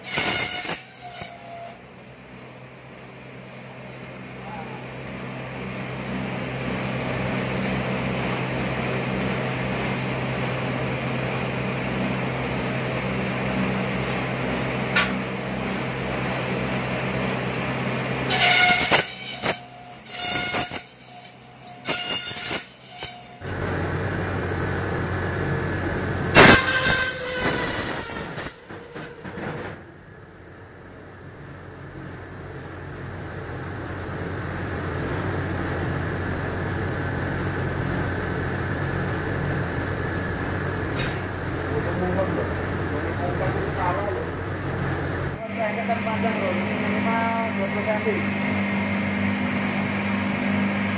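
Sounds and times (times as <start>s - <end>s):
machine motor humming: 44.6s - 50.9s.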